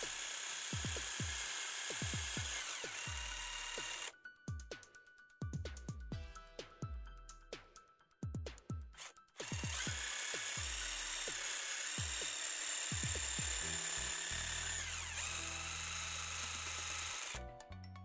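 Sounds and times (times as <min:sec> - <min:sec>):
impact driver drilling into wood: 0:00.0 - 0:04.1, 0:09.0 - 0:17.4.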